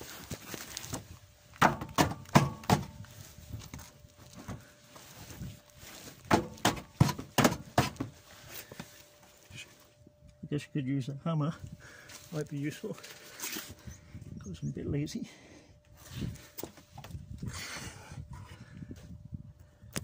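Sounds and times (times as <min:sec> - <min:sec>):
boot kicking steel bar: 0:01.6 - 0:03.0.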